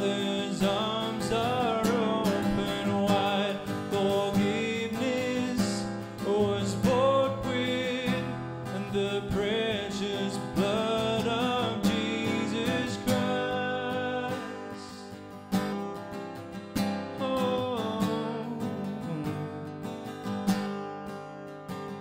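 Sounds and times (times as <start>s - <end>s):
man singing: 0.0s - 15.2s, 17.1s - 19.5s
acoustic guitar strumming: 0.0s - 22.0s.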